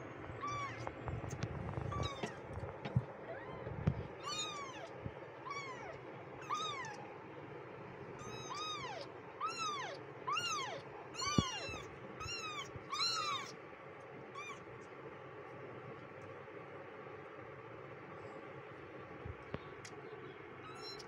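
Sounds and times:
kittens mewing: 0.4 - 1.0, 1.7 - 7.1, 8.2 - 13.6, 20.6 - 21.0.

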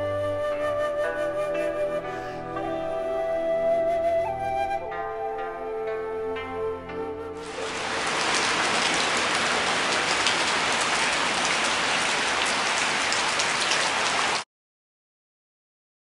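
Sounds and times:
flute tune: 0.0 - 8.2
heavy rain hissing: 7.4 - 14.4.

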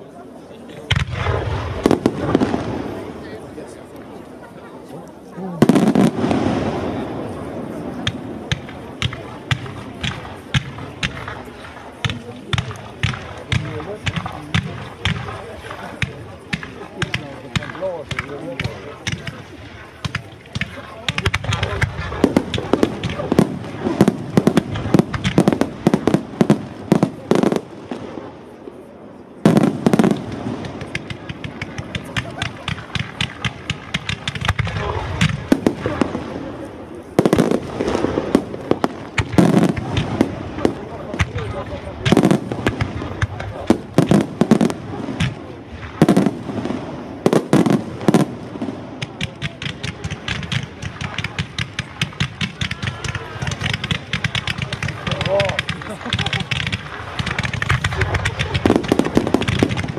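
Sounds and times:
fireworks crackling: 0.0 - 59.9
fireworks bursting with bangs: 0.6 - 59.9.

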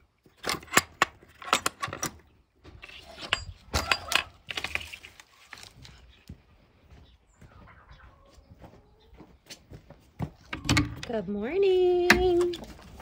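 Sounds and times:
metal latch clicking: 0.4 - 2.2, 10.5 - 11.1.

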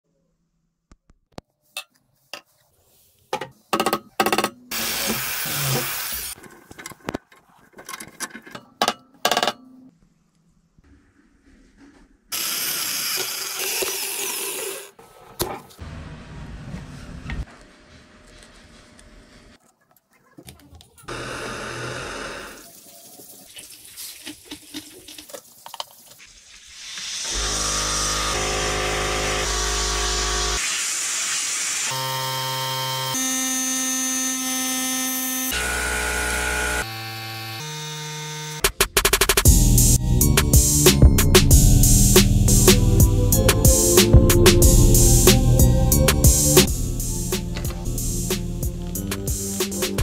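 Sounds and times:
power tool bursts: 4.7 - 6.4, 21.1 - 22.6, 27.2 - 38.6
handling clicks and knocks: 6.4 - 9.8.

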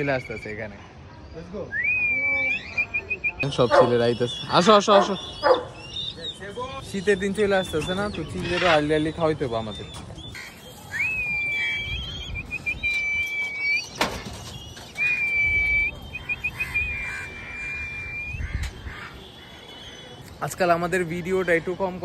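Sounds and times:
wind rumbling on microphone: 10.0 - 19.1.

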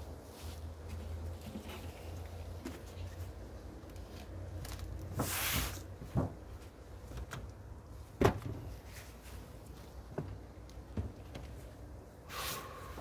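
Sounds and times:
short hiss: 12.3 - 13.0.

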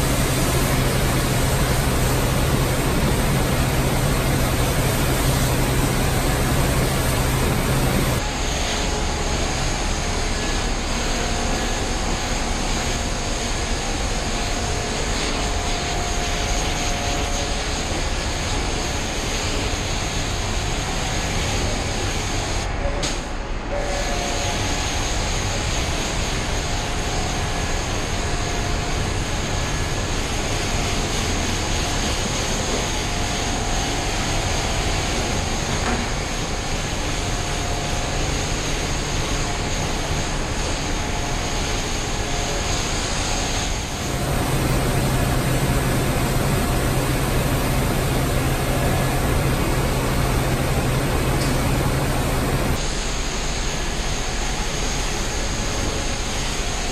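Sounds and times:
pressure washer spraying water: 0.0 - 8.2, 44.0 - 52.8
steady low hum: 0.0 - 20.5, 25.9 - 55.6.

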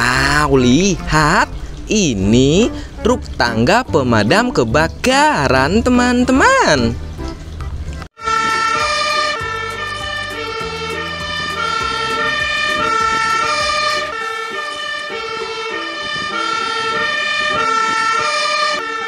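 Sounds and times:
two-tone fire engine siren: 8.2 - 19.0.

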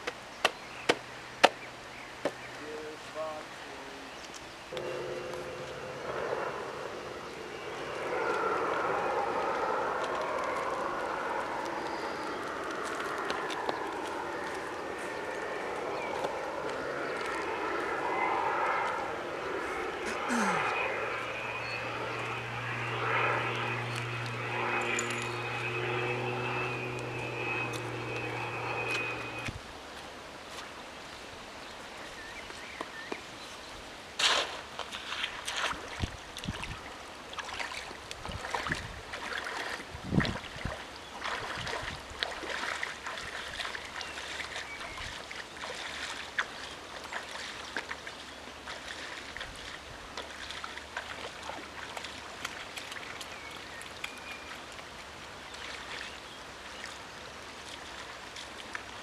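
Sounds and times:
steady engine drone: 0.8 - 29.6
feet wading through shallow water: 4.4 - 31.2, 34.2 - 59.0.

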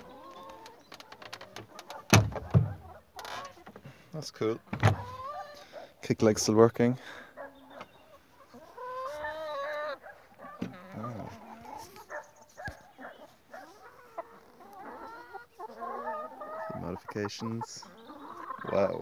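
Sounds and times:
hens clucking: 0.0 - 19.0.

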